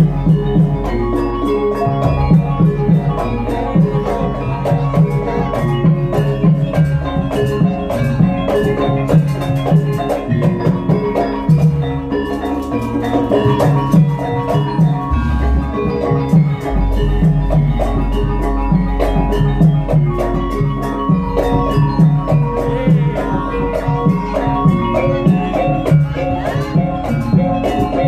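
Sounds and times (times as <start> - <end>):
metal-keyed instruments ringing: 0.0 - 28.0
fast drum beat: 13.0 - 27.6.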